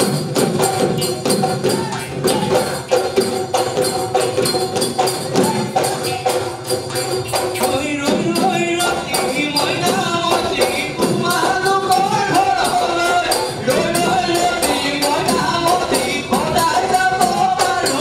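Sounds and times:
dhol drums: 0.0s - 18.0s
jingling percussion: 0.0s - 18.0s
person singing: 7.6s - 18.0s.

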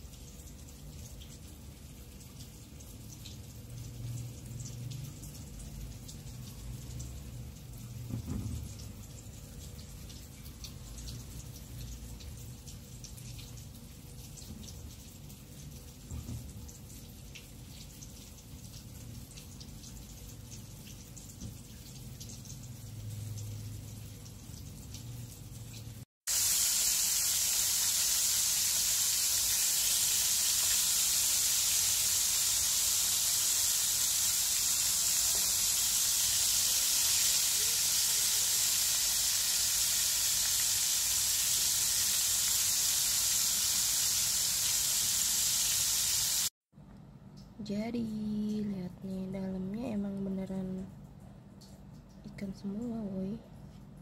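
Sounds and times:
fish sizzling in hot oil: 26.3s - 46.5s.

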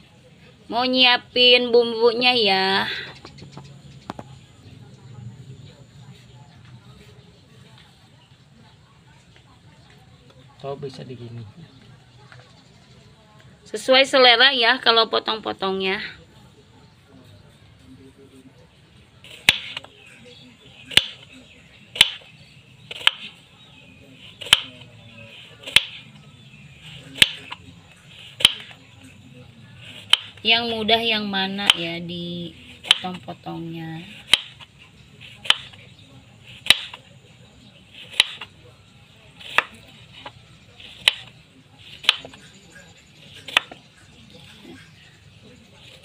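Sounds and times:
knife slicing soft fruit: 19.2s - 30.9s, 31.6s - 32.0s, 32.6s - 33.3s, 34.0s - 46.0s.

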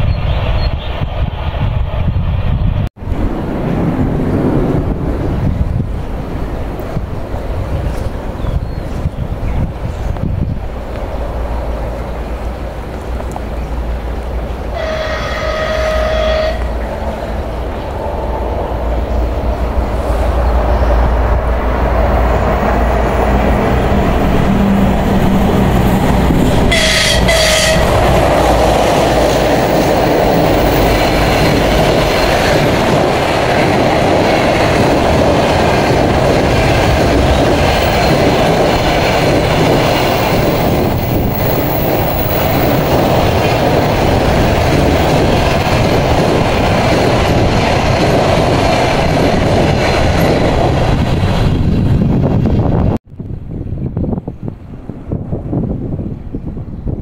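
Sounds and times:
train wheels rumbling on rail: 0.0s - 57.0s
train horn blasts: 14.7s - 17.0s, 26.6s - 28.2s.

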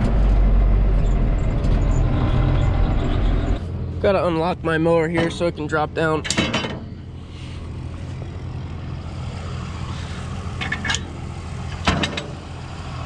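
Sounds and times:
tractor engine idling: 2.6s - 13.0s
sharp metallic knocks: 6.2s - 7.0s, 11.7s - 12.5s.

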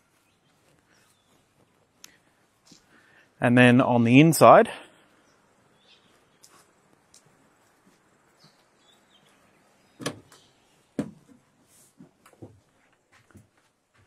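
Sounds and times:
footsteps scuffing: 0.0s - 3.0s, 6.1s - 9.4s, 11.1s - 14.0s.

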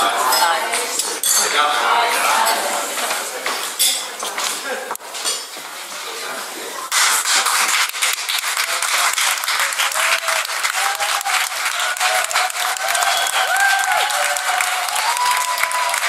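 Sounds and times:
crowd applauding: 6.9s - 16.0s.

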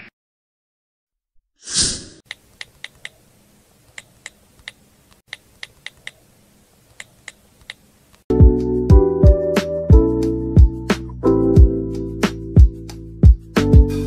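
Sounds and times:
whoosh sound effect: 1.6s - 2.2s.

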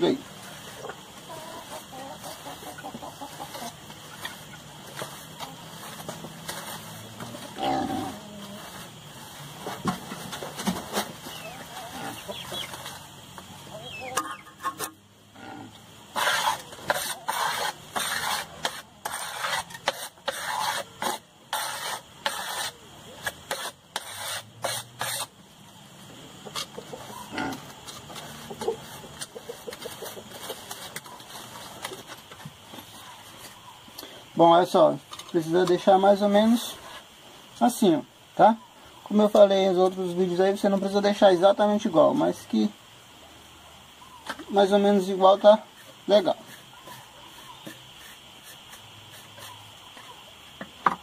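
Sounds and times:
chicken clucking: 0.4s - 15.0s, 26.1s - 34.1s
template scraping packed earth: 16.1s - 25.4s, 45.4s - 50.2s.

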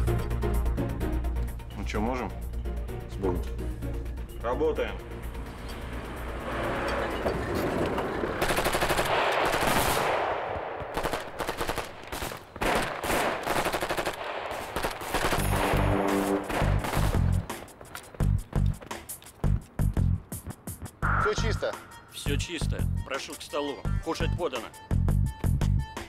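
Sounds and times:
automatic gunfire: 8.4s - 17.3s
music with low beat: 15.5s - 23.1s, 23.9s - 26.0s.

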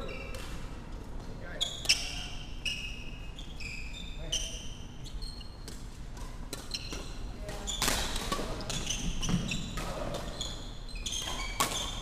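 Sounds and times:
shoes squeaking on wooden floor: 8.6s - 12.0s
racket hitting shuttlecock: 11.3s - 12.0s.

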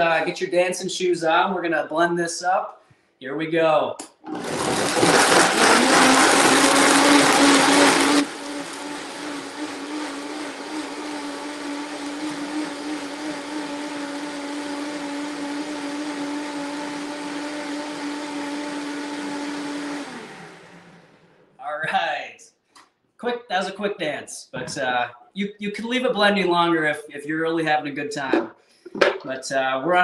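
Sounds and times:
blender running: 4.2s - 21.3s.

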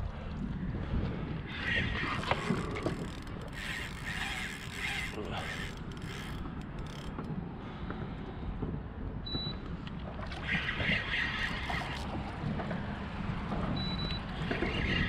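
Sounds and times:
wind: 0.0s - 15.0s
water lapping: 0.8s - 7.2s
fishing reel rasping: 1.6s - 7.3s, 11.2s - 12.1s.

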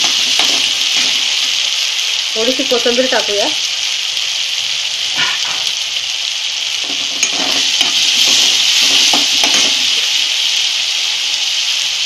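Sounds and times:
spoon stirring and scraping: 0.0s - 1.4s, 6.8s - 10.0s
onion and tomato sizzling in oil: 0.0s - 12.0s.

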